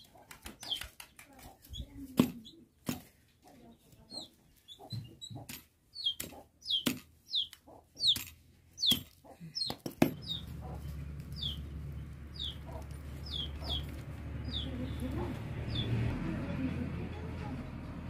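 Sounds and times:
chick peeping: 3.4s - 8.2s, 8.8s - 11.7s, 12.3s - 15.9s.

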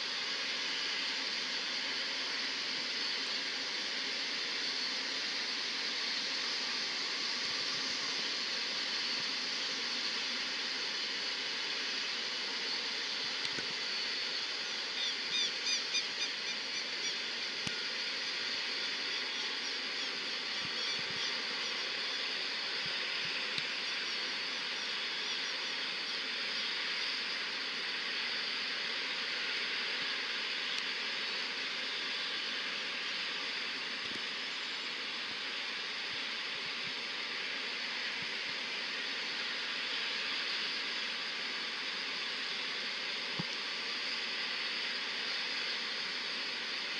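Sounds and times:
steady industrial plant hiss: 0.0s - 46.9s.

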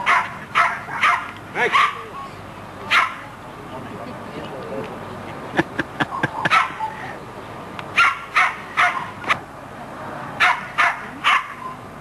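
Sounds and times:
dog barking: 0.0s - 2.2s, 2.9s - 3.2s, 6.4s - 7.0s, 8.0s - 9.2s, 10.4s - 11.8s.

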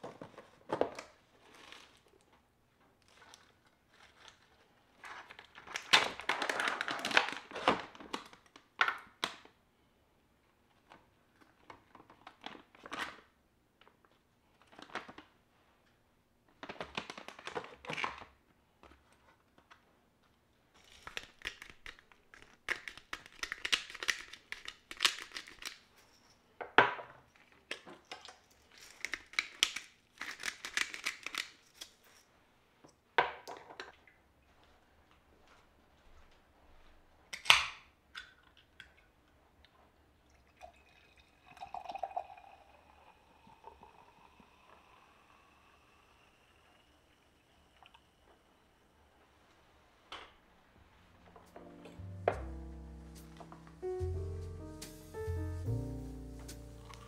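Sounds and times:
plastic packaging crinkling: 3.0s - 8.8s, 20.8s - 25.9s, 28.6s - 32.0s.

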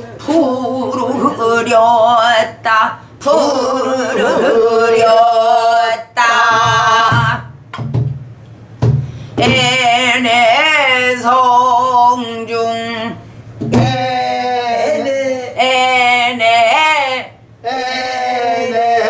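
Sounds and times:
woman singing ornamented phrases: 0.2s - 7.5s, 15.6s - 17.4s.

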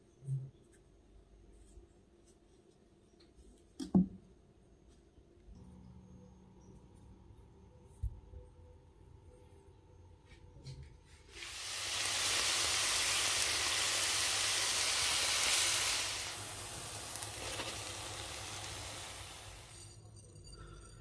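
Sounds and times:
dough frying in hot oil: 11.2s - 20.1s.

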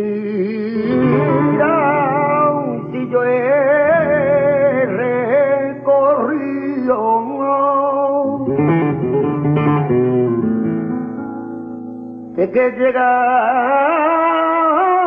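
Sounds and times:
man singing ornamented vocal line: 0.0s - 9.1s, 12.3s - 15.0s
acoustic guitar: 0.0s - 15.0s.

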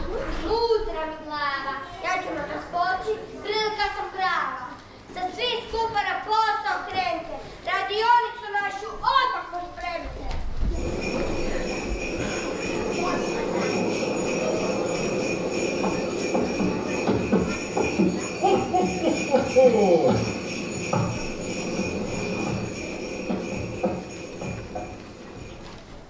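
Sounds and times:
sleigh bells shaking: 10.7s - 26.0s.

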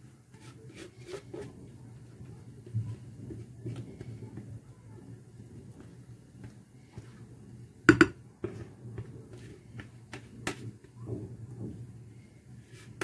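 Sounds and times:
kitchenware knocking and clinking: 7.9s - 8.2s.

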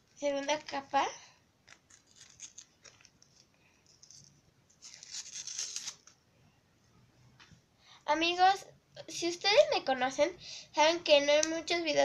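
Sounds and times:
paper crinkling: 1.6s - 6.2s
paper tearing: 1.7s - 3.0s, 4.8s - 6.1s.

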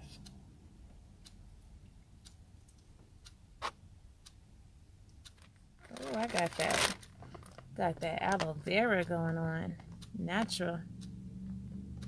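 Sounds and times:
low steady hum: 0.0s - 12.0s
faint clicks and rustles: 5.1s - 8.6s.

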